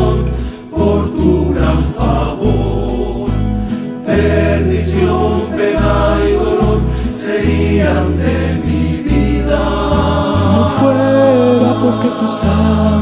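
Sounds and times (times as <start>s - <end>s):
group of voices singing in harmony: 0.0s - 13.0s
guitar ensemble with deep bass: 0.0s - 13.0s.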